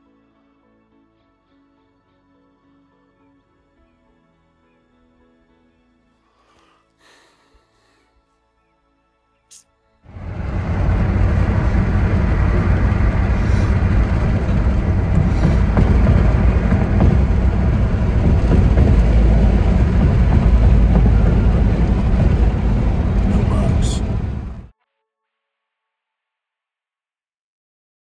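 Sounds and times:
loud low rumbling: 0:10.1 - 0:24.7.

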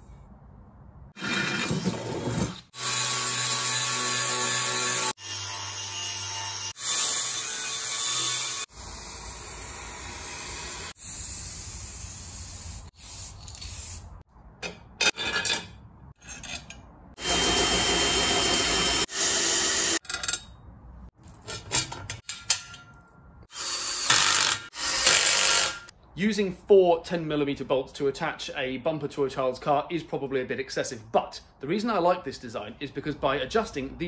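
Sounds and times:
angle grinder grinding metal: 0:01.2 - 0:11.0, 0:17.2 - 0:20.4
metal parts clicking and clattering: 0:21.2 - 0:23.2.

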